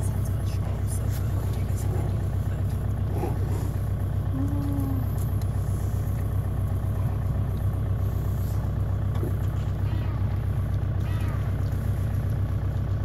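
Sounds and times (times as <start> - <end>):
engine idling: 0.0 - 13.0
short low tone: 4.3 - 5.2.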